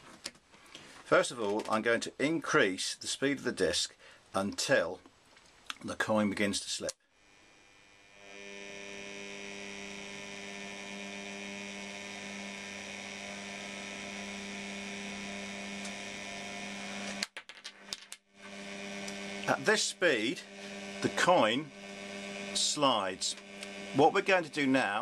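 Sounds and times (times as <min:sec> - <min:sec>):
turntable motor hum: 0:07.2 - 0:25.0.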